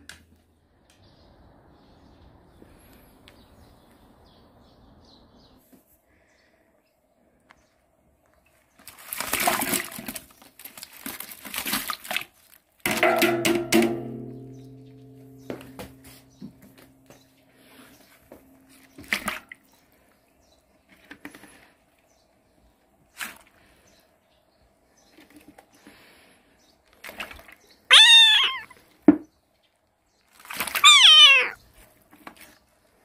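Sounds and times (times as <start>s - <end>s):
cat meowing: 27.9s - 28.7s, 30.7s - 31.6s.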